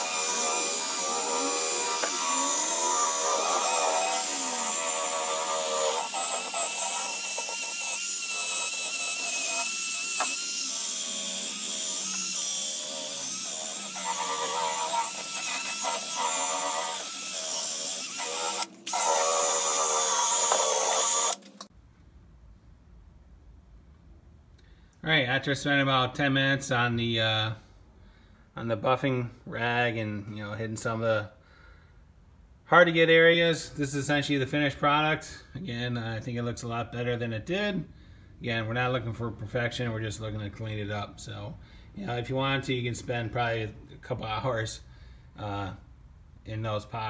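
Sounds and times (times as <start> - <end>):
cordless drill motor whining: 0.0 - 21.7.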